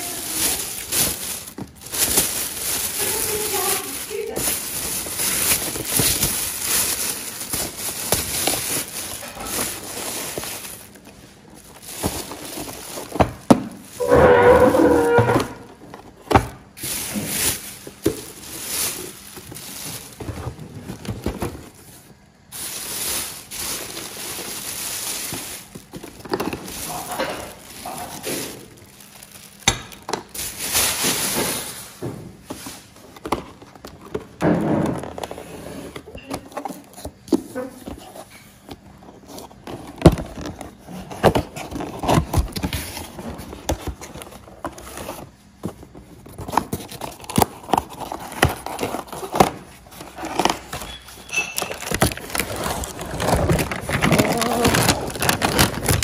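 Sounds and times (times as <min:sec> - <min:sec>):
plastic bag rustling: 0:00.0 - 0:56.0.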